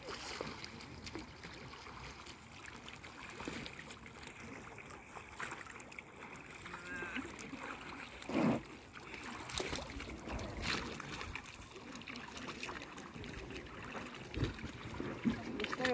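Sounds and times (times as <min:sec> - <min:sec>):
oars splashing in water: 0:00.0 - 0:15.9.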